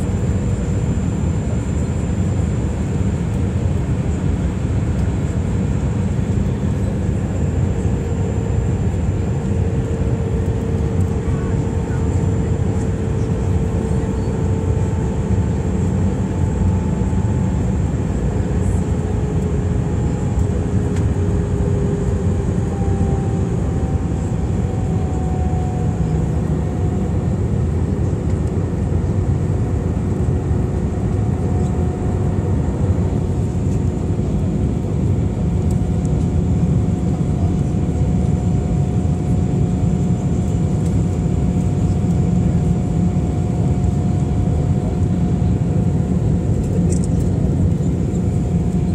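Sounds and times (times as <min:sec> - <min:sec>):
airplane cabin roar: 0:00.0 - 0:48.9
faint engine whine: 0:00.0 - 0:48.9.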